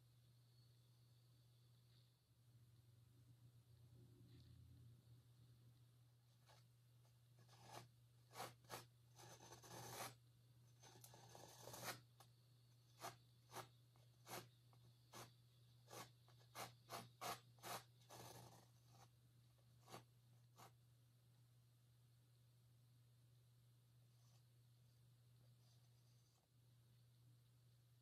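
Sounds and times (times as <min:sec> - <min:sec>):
palette knife scraping canvas: 0:07.4 - 0:10.2, 0:10.8 - 0:12.1, 0:12.9 - 0:19.1.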